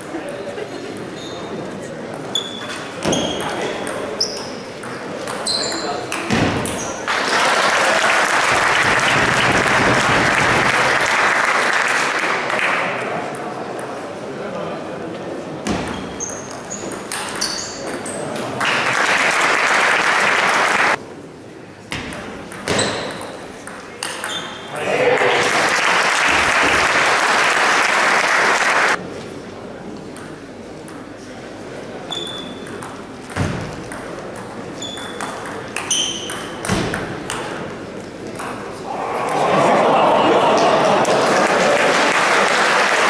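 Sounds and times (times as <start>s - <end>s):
chatter in a hall: 0.0s - 43.0s
audience applauding: 7.1s - 12.9s, 18.6s - 21.0s, 25.1s - 29.0s, 38.9s - 43.0s
table tennis ball pings: 32.3s - 37.4s.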